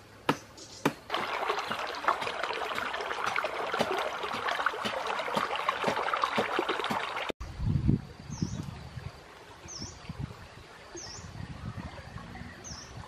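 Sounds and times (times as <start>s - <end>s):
stream trickling over stones: 1.1s - 7.4s.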